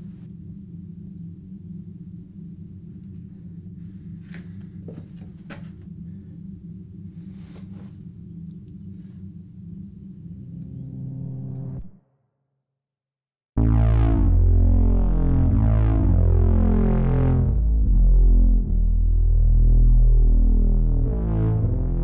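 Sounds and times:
low rumbling drone: 0.0s - 12.2s, 13.6s - 22.0s
layered tone: 10.2s - 12.0s, 13.6s - 22.0s.

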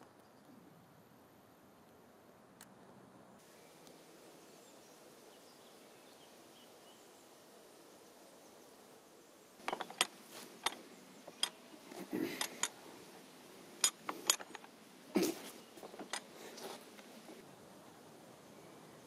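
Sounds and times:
low steady background: 0.0s - 19.0s
windlass metal clicks and clanks: 9.6s - 12.8s, 13.8s - 14.8s, 15.8s - 17.1s.

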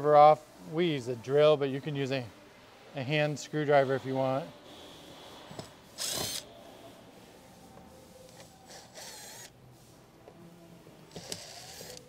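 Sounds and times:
cordless driver whirring: 6.0s - 6.5s, 8.7s - 9.5s, 11.1s - 12.0s.

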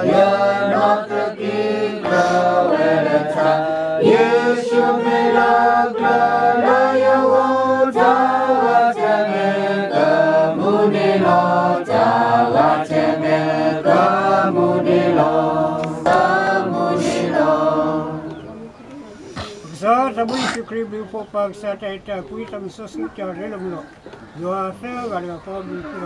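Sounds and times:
group singing a cappella chant: 0.0s - 18.8s.

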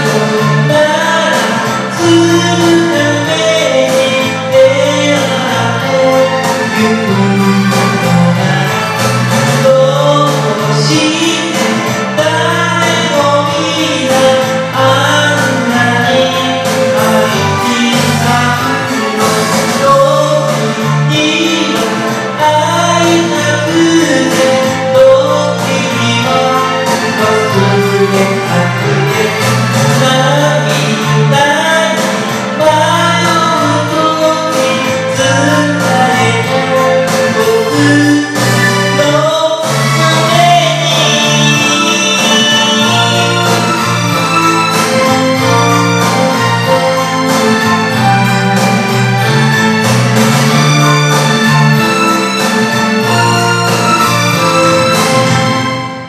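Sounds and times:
person singing: 0.0s - 49.6s
pop ballad backing track: 0.0s - 56.0s.

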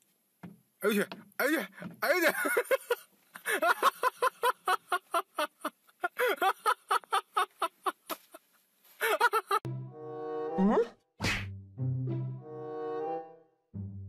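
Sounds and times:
person laughing in high voice: 9.0s - 9.6s.

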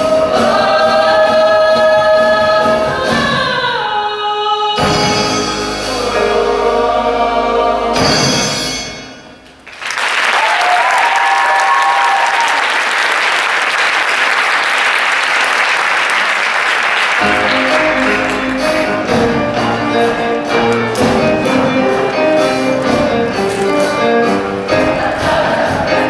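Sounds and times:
choir singing with accompaniment: 0.0s - 9.4s, 17.2s - 26.0s
audience applauding and cheering: 9.6s - 24.2s.

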